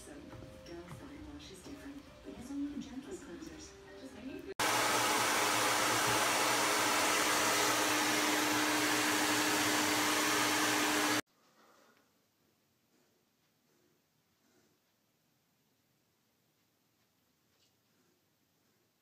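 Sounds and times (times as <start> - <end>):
hair dryer blowing: 4.6 - 11.3.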